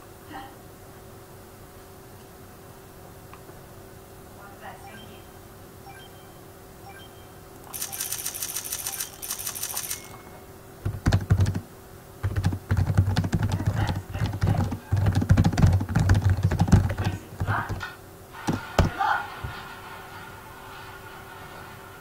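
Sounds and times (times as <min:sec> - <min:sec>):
rapid high clicks: 0:07.6 - 0:10.2
typing on computer keyboard: 0:07.7 - 0:10.2, 0:10.8 - 0:11.6, 0:12.2 - 0:17.8.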